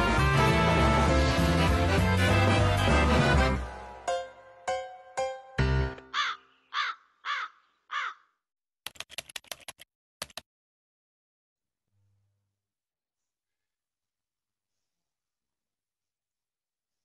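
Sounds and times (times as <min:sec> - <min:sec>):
music jingle: 0:01.0 - 0:06.1
crow cawing: 0:06.1 - 0:08.4.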